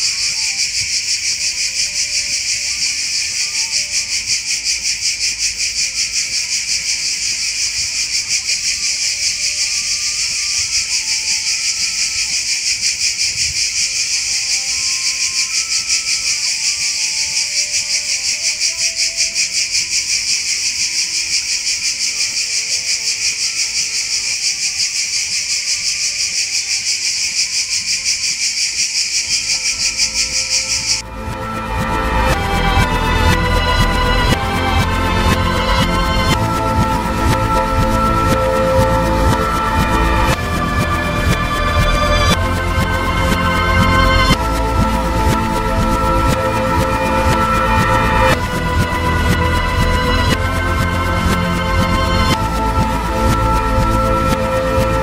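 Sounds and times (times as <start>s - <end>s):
cicadas buzzing: 0.0s - 55.0s.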